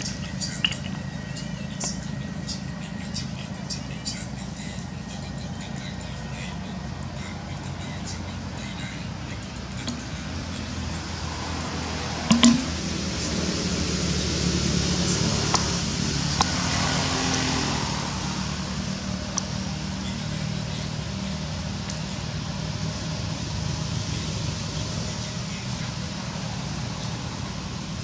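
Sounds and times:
motor engine humming: 0.0s - 28.0s
faint clicks: 0.4s - 1.0s.

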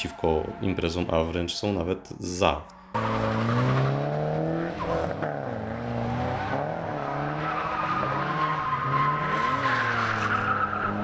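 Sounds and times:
car engines revving: 2.9s - 11.0s
tire squeal: 3.0s - 11.0s.

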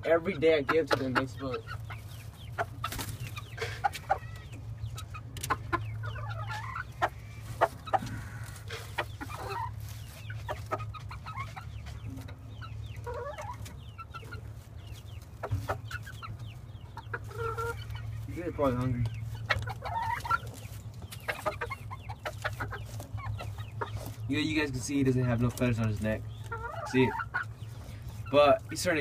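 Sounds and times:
chickens clucking: 0.0s - 29.0s
wings flapping: 2.8s - 3.4s.

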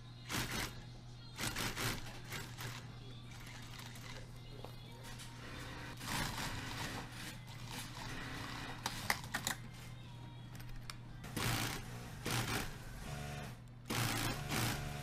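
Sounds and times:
motor humming: 11.2s - 15.0s
sewing machine stitching: 11.3s - 15.0s.

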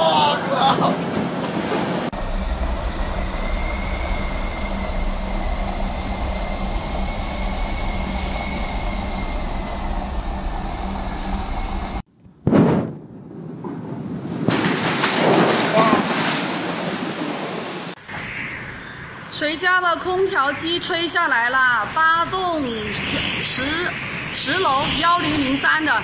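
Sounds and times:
strong wind rushing: 0.0s - 12.1s.

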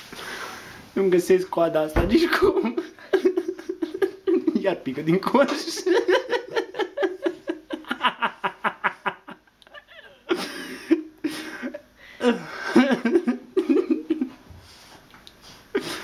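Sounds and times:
people laughing: 2.3s - 4.7s, 5.3s - 14.3s.

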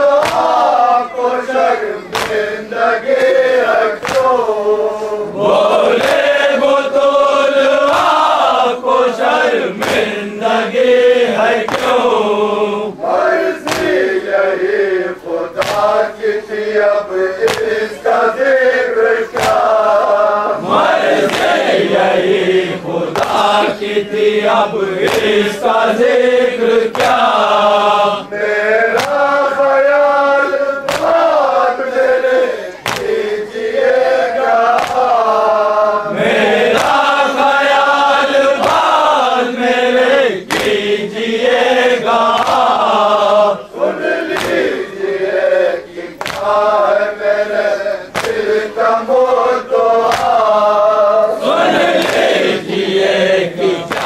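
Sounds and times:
lead reciter chanting: 0.0s - 54.0s
men chanting a lament in unison: 0.0s - 54.0s
hand slaps on chest: 0.2s - 0.6s, 2.1s - 2.5s, 4.0s - 4.4s, 6.0s - 6.3s, 7.8s - 8.4s, 9.8s - 10.1s, 11.6s - 12.1s, 13.6s - 14.1s, 15.6s - 16.1s, 17.4s - 17.8s, 19.3s - 19.7s, 21.2s - 21.8s, 23.1s - 23.8s, 25.0s - 25.4s, 26.9s - 27.4s, 28.9s - 29.2s, 30.9s - 31.2s, 32.8s - 33.2s, 34.7s - 35.2s, 36.7s - 37.0s, 38.6s - 39.0s, 40.4s - 40.8s, 42.3s - 42.8s, 44.3s - 44.7s, 46.2s - 46.6s, 48.1s - 48.4s, 50.0s - 50.4s, 51.9s - 52.4s.

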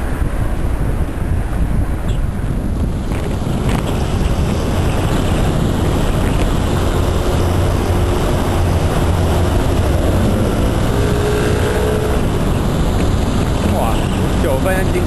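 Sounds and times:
wind rush on microphone: 0.0s - 15.0s
motorcycle engine running: 3.0s - 14.4s.

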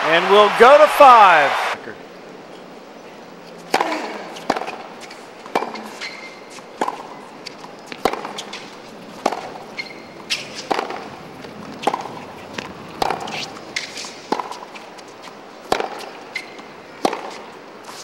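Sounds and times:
tennis ball bouncing: 3.6s - 18.0s
tennis ball hit by racket: 3.7s - 4.8s, 5.5s - 7.1s, 7.9s - 14.7s, 15.6s - 17.4s.

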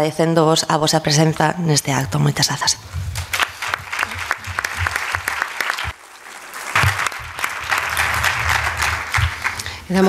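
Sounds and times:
audience applauding: 3.1s - 10.0s.

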